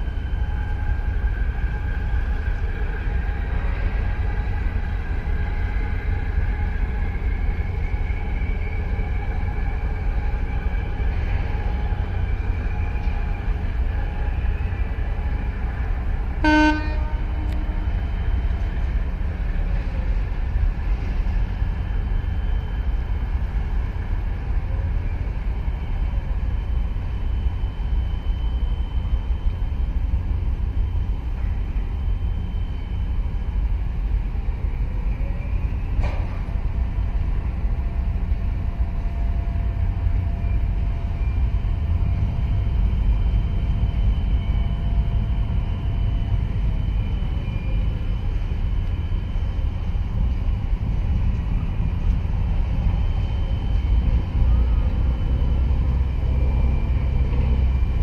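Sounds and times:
low harbour rumble: 0.0s - 58.0s
short horn toot: 16.4s - 17.7s.

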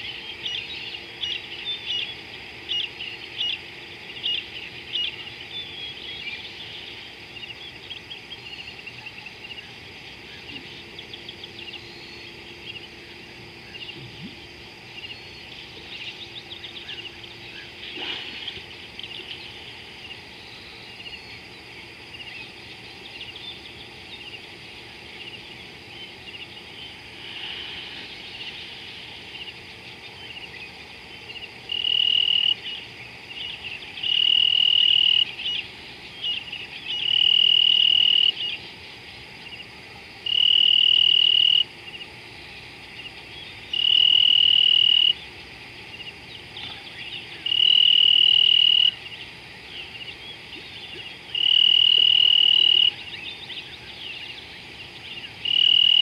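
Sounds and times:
birds chirping: 0.0s - 34.3s
chirping insects: 0.0s - 56.0s
insect trilling buzzes: 0.0s - 56.0s.

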